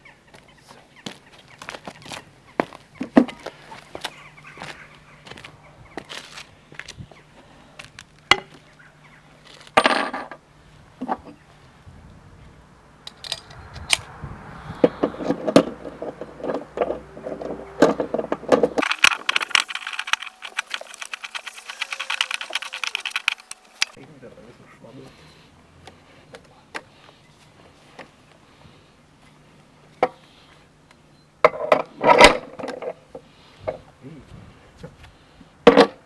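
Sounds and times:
metal parts clinking and rattling: 0:13.1 - 0:13.6, 0:15.5 - 0:24.0
metal scrape: 0:14.8 - 0:24.0
rapid metallic clicks: 0:18.8 - 0:24.0.

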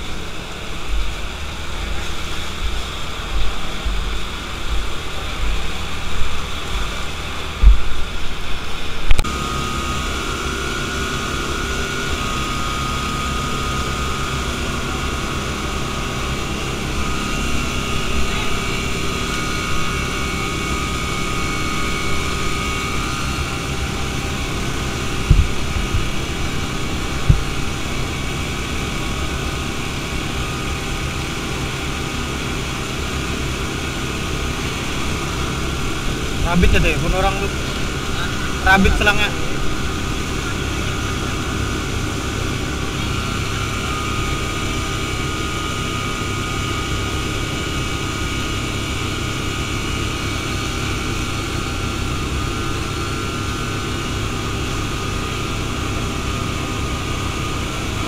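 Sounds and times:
low rumble: 0:00.0 - 0:09.3, 0:21.7 - 0:42.4
engines droning with whine: 0:00.0 - 0:58.0
knocks on microphone: 0:25.3 - 0:26.0.

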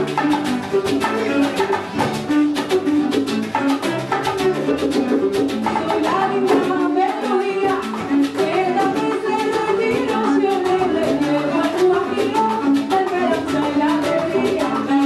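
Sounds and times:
bongos and cajon: 0:00.0 - 0:15.0
guitar strumming: 0:00.0 - 0:15.0
person singing: 0:05.8 - 0:15.0.

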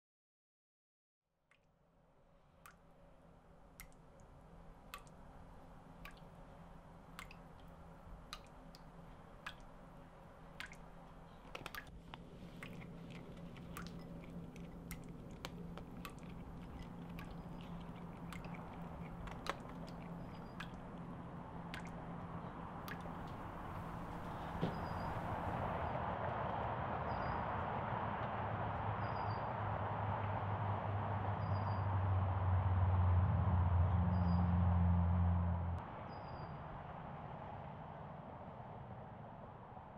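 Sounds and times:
water dripping from faucet: 0:01.4 - 0:25.7
low steady hum: 0:01.5 - 0:26.2
cat crunching food: 0:11.4 - 0:25.7.

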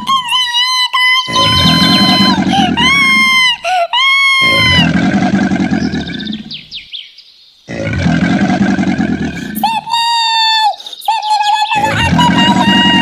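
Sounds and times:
high squealing cry: 0:00.0 - 0:04.9, 0:11.5 - 0:13.0
cartoon growling: 0:01.3 - 0:03.6, 0:04.2 - 0:06.6, 0:07.7 - 0:10.0, 0:11.8 - 0:13.0.

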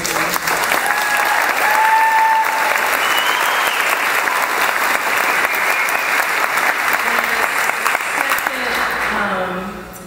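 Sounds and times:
audience applauding: 0:00.0 - 0:09.3
crowd whooping: 0:00.7 - 0:06.5.

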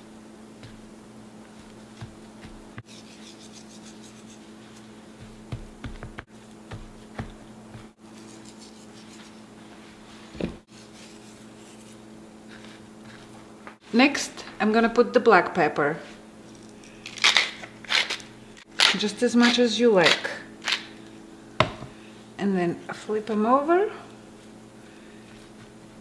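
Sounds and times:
steady low hum: 0:00.0 - 0:18.8, 0:20.4 - 0:26.0
hands rubbing salt into meat: 0:01.5 - 0:05.6, 0:06.7 - 0:09.6
steaks thumping on cutting board: 0:21.6 - 0:21.9.

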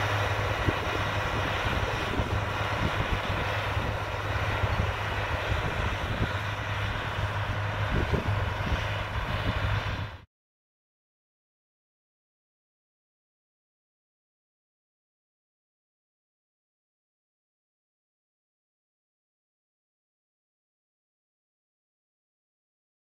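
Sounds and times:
tractor engine running: 0:00.0 - 0:10.2
low rumbles: 0:00.0 - 0:10.3.

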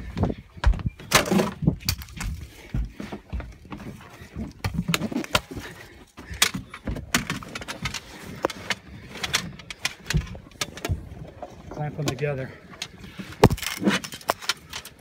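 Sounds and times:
dull low thuds: 0:00.0 - 0:04.9
gear clattering against boat: 0:00.0 - 0:15.0.

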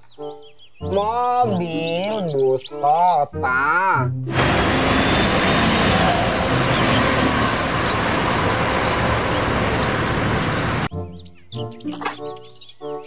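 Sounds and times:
city traffic: 0:04.3 - 0:10.9.

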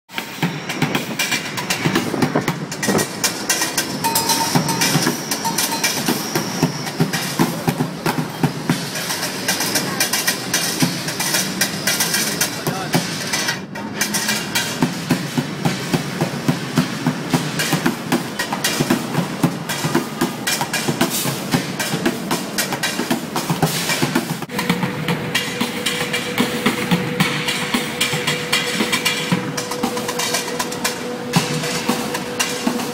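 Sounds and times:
drumming on plastic buckets: 0:00.2 - 0:32.9.

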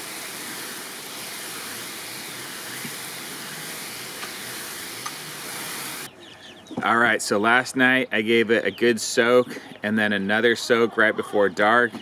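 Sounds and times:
hose spraying water on dirt: 0:00.0 - 0:06.1.

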